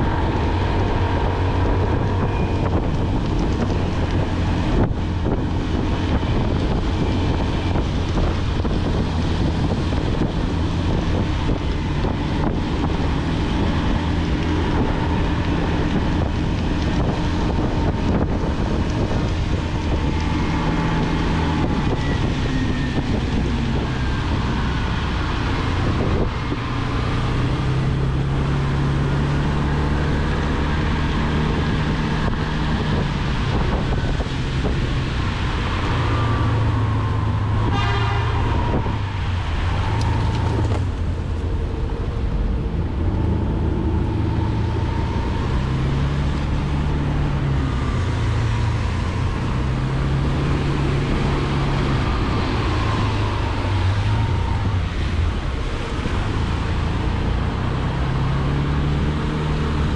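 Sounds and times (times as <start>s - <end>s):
wind noise: 0.0s - 59.9s.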